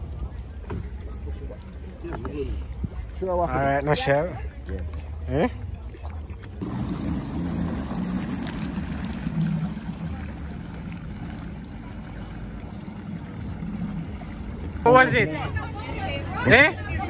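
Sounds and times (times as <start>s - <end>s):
jet ski engine running: 6.6s - 17.0s.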